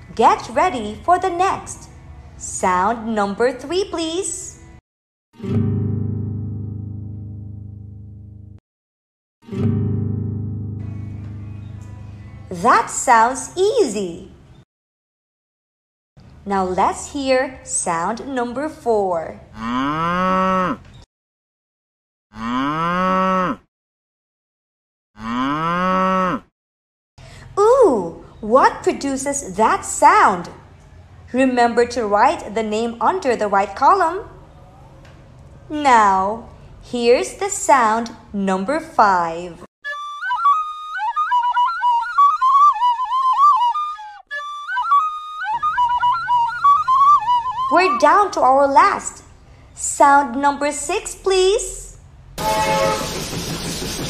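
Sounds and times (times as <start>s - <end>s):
cow mooing: 19.5s - 20.8s, 22.4s - 23.6s, 25.2s - 26.5s
flute melody: 39.8s - 48.4s.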